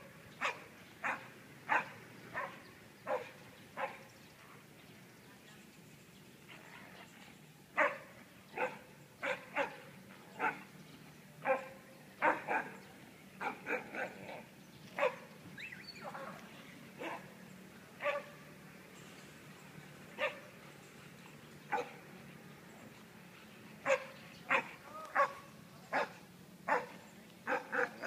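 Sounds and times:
dog barking: 0.4 - 4.0, 7.8 - 8.0, 8.6 - 9.8, 11.4 - 12.7, 15.0 - 15.2, 18.0 - 18.3, 21.7 - 22.0, 23.9 - 26.9, 27.5 - 28.0.

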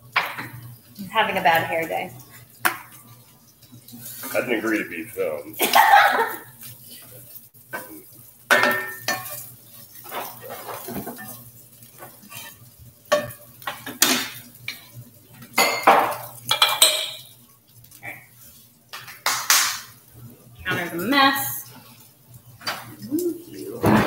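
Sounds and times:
wooden spatula scraping skillet: 3.8 - 4.6, 8.7 - 15.0.

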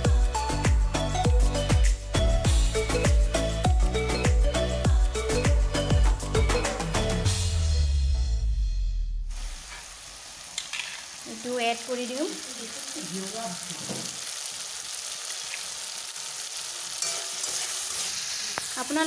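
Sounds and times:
tomatoes sizzling in hot oil: 9.2 - 19.0.

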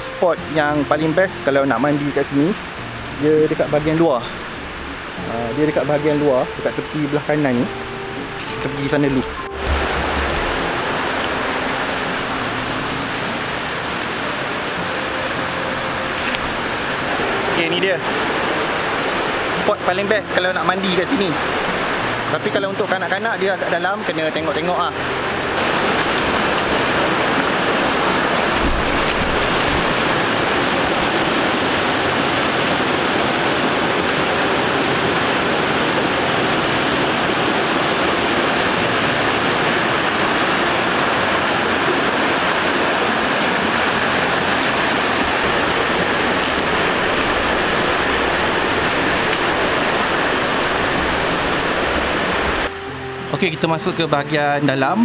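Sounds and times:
stream rushing over boulders: 0.0 - 55.0.

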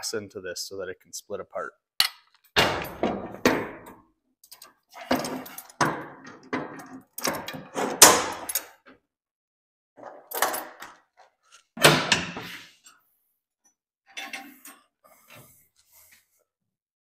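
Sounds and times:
metal clamps clanking on sheet: 2.6 - 8.8, 14.1 - 14.9.

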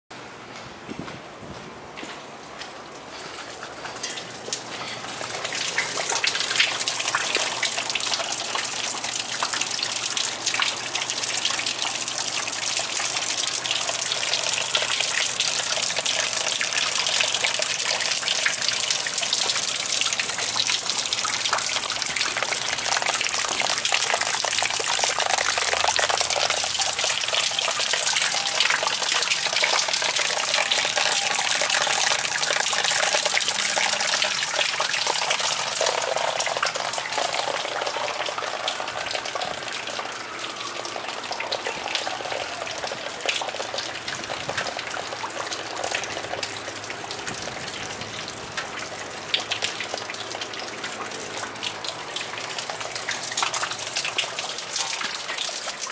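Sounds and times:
heavy rain on plastic sheeting: 38.6 - 55.9.

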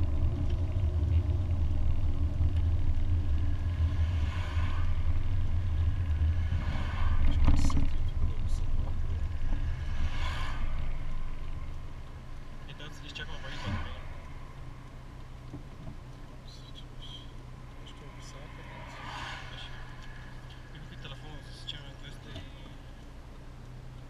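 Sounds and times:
car engine and road rumble: 0.0 - 24.0.

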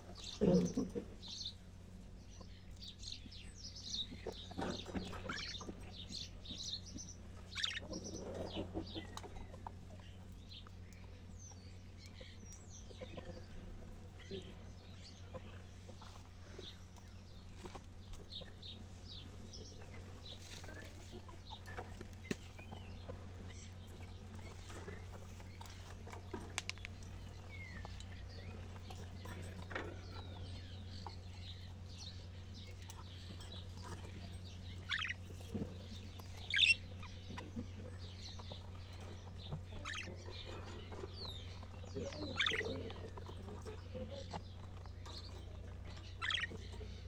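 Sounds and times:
low hum: 0.0 - 47.0
budgerigars chirping: 0.1 - 1.6, 2.2 - 26.0, 27.0 - 47.0
budgerigar squawks: 7.5 - 8.4, 34.8 - 35.2, 36.5 - 36.8, 42.2 - 42.8, 46.2 - 46.6.

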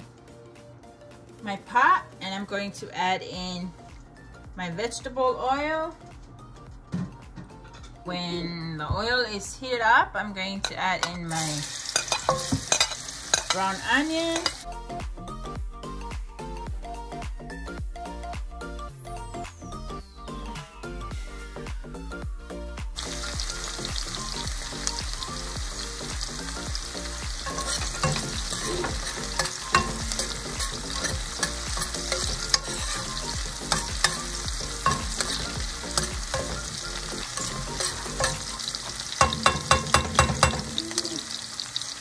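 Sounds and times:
onion sizzling in a pan: 10.9 - 14.6, 23.0 - 42.0
spatula stirring in a pan: 11.9 - 13.6, 26.0 - 41.1.

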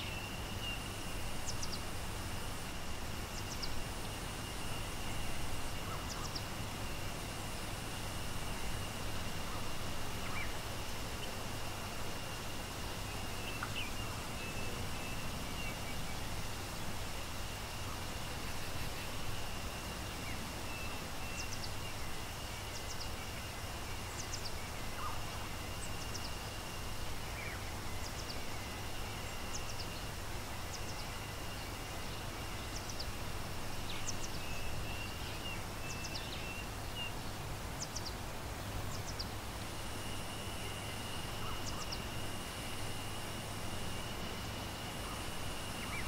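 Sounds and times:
bird chirping: 33.8 - 37.2, 40.5 - 42.3.

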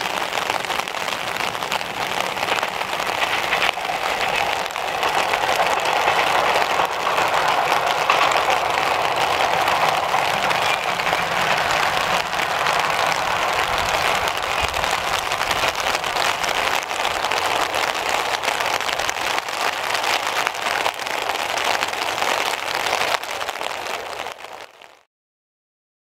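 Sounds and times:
distant railcar engines rumbling: 0.0 - 25.0
heavy rain pouring: 0.0 - 25.1.

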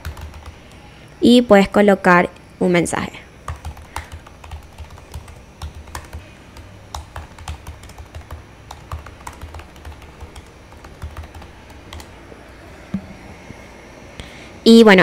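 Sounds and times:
computer keyboard typing: 0.0 - 0.8, 3.4 - 12.1.

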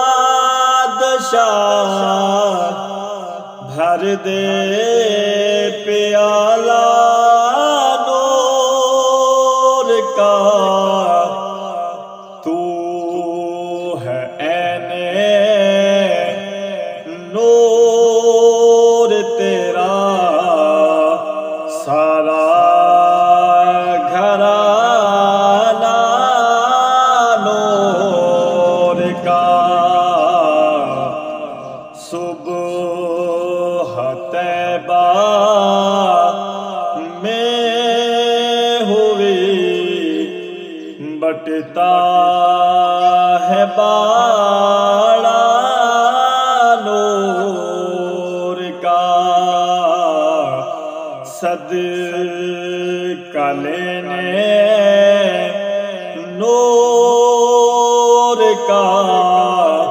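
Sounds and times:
man singing unaccompanied: 0.0 - 59.9
low hum: 27.4 - 32.0.

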